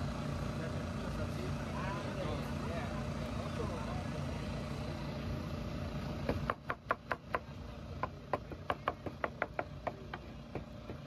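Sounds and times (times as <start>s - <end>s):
cleaver chopping on plastic board: 6.3s - 11.0s.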